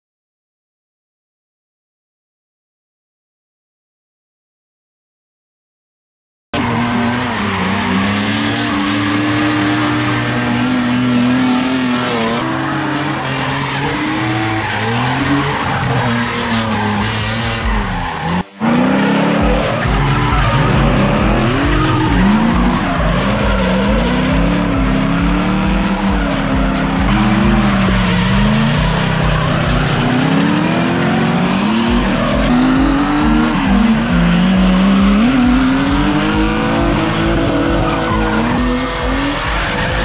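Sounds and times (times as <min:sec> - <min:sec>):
car engines revving: 0:06.6 - 0:40.0
tyres squealing: 0:06.6 - 0:40.0.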